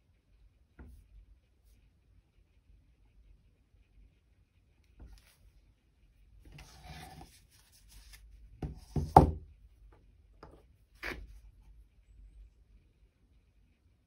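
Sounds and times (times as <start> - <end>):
board scraping on cutting mat: 6.5 - 9.2, 10.4 - 11.4.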